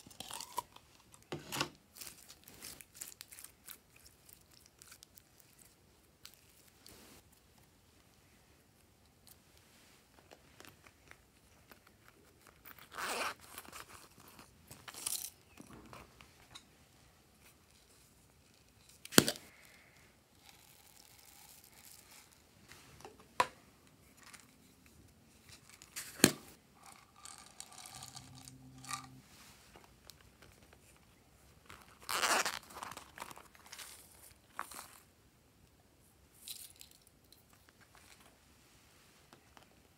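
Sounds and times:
tearing rustle: 0:31.8 - 0:34.9.

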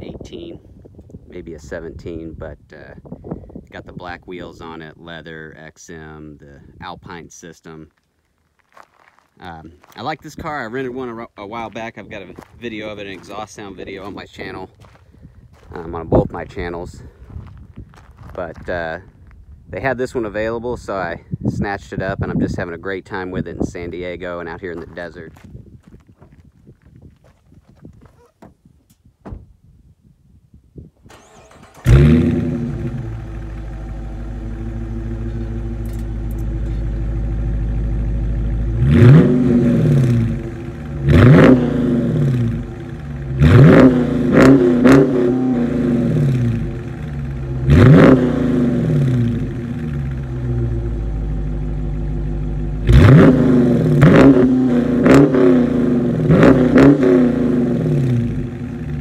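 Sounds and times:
car engine revving: 0:31.1 - 0:59.0
car engine starting: 0:31.1 - 0:59.0
car engine idling: 0:31.2 - 0:55.0.

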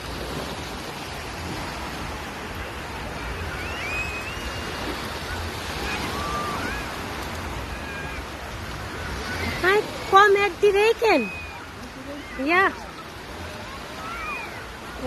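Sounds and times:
surf washing over sand: 0:00.0 - 0:15.0.

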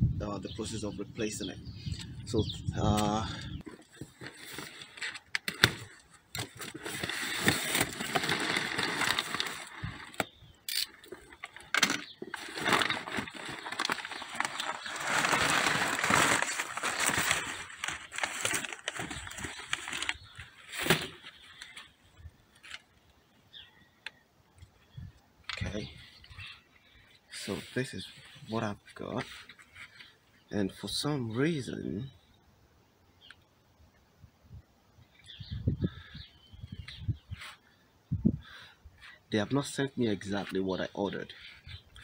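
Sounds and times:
packing paper rustling: 0:03.7 - 0:10.3, 0:11.1 - 0:22.0
cardboard box opening: 0:03.8 - 0:10.3, 0:11.8 - 0:21.3.

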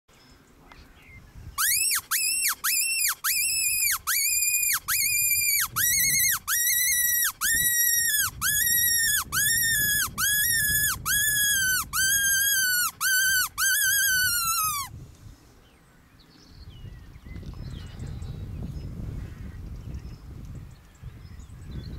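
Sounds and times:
predator call squealing: 0:01.6 - 0:14.9.

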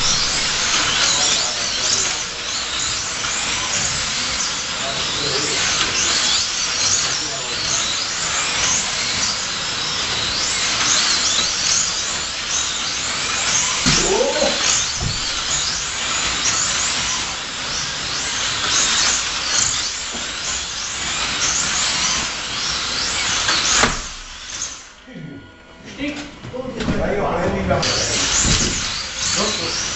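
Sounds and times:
sharp knock: 0:00.0 - 0:01.5, 0:13.8 - 0:15.8
slot car motors whining: 0:00.0 - 0:25.8, 0:27.0 - 0:29.9.

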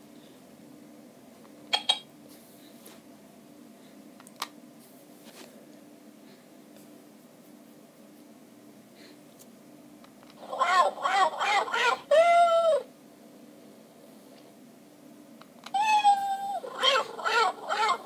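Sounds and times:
electronic toy meowing: 0:10.4 - 0:12.9, 0:15.7 - 0:18.0.

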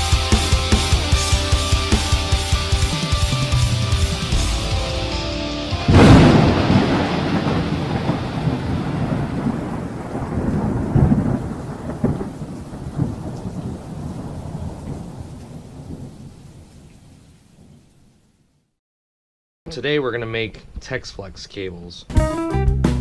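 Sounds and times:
thunder: 0:05.9 - 0:16.9
rain: 0:05.9 - 0:18.7.

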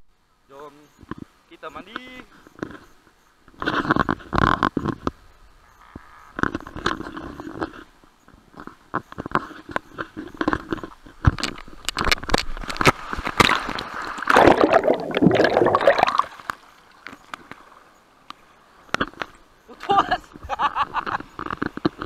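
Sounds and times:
water splashing and sloshing: 0:09.4 - 0:22.0.

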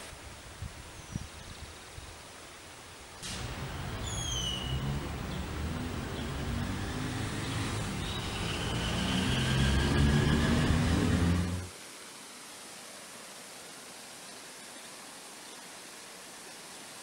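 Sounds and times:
vehicle rumble: 0:03.2 - 0:11.7.

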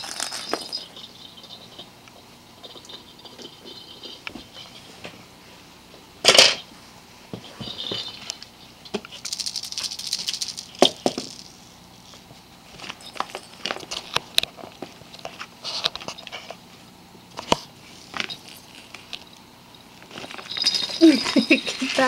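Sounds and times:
ferret scuffling among toy balls: 0:00.0 - 0:01.9, 0:20.0 - 0:22.0.

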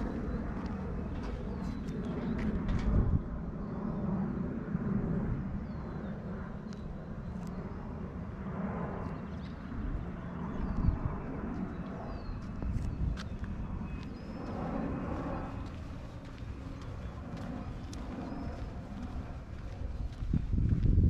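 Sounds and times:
distant traffic rumble: 0:00.0 - 0:21.0
faint high chirps and clicks: 0:06.6 - 0:07.6.

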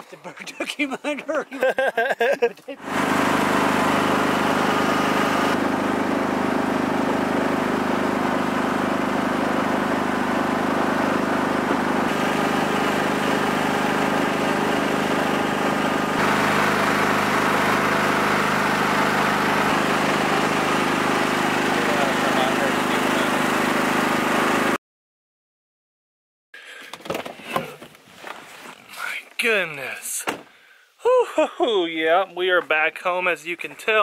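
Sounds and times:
boat motor humming: 0:02.8 - 0:24.8.

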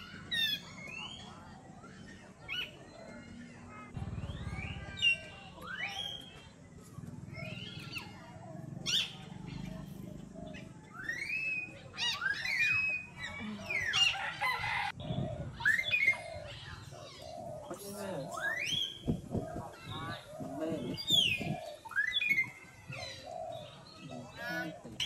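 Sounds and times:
high-pitched animal chirps and squeals: 0:11.0 - 0:14.7.

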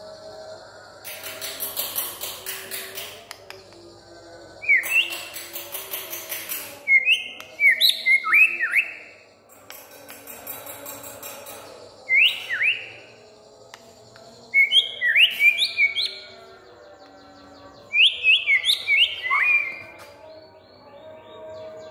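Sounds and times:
bird singing whistled song: 0:04.6 - 0:09.2, 0:10.5 - 0:13.2, 0:14.2 - 0:21.9.

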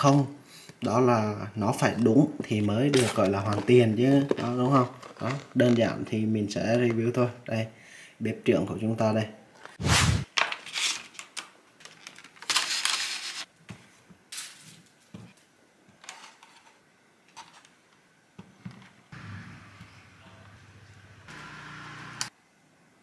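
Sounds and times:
plastic crackling: 0:02.5 - 0:06.2, 0:10.4 - 0:13.5.

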